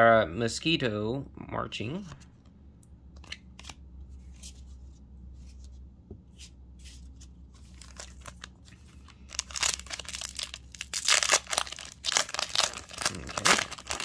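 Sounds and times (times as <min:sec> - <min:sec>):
foil wrapper crinkling and tearing: 0:07.6 - 0:14.0
foil wrapper rustling: 0:07.6 - 0:14.0.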